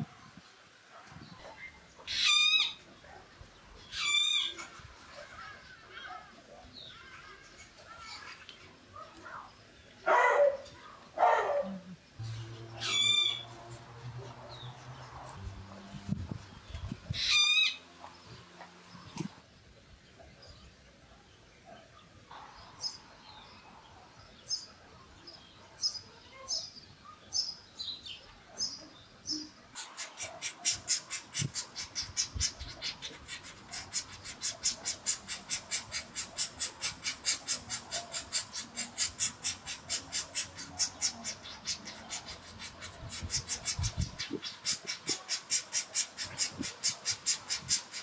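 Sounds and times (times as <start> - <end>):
woodpecker nestlings begging calls: 29.8 - 48.0.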